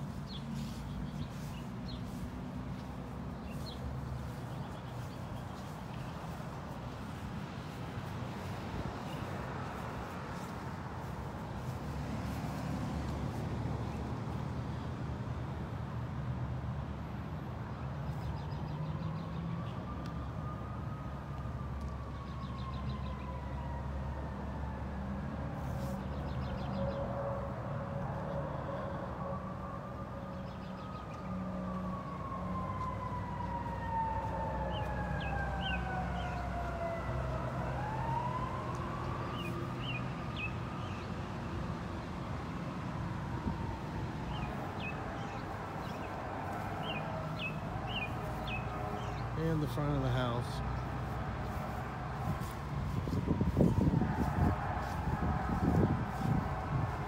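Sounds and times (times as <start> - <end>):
siren wailing: 19.4 - 25.7, 26.5 - 41.2, 42.2 - 57.0.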